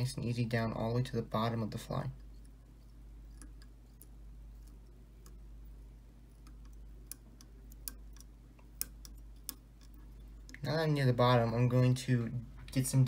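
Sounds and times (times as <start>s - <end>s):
low steady hum: 0.0s - 13.0s
thread bobbin ticking: 2.1s - 10.7s.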